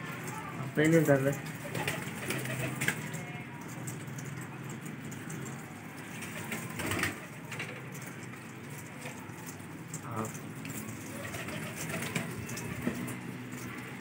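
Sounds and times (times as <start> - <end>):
pigeons cooing: 10.8 - 13.2.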